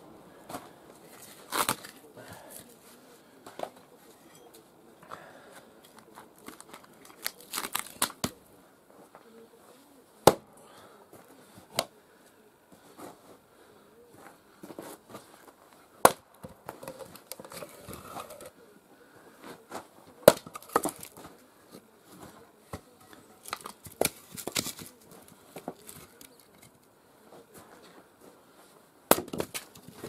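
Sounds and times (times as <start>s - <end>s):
axe chopping a log: 10.2s - 10.5s, 16.0s - 16.3s, 20.3s - 21.1s, 29.1s - 29.7s
wood knocking and cracking: 16.0s - 18.4s, 20.2s - 21.3s, 22.7s - 26.7s, 29.1s - 30.0s.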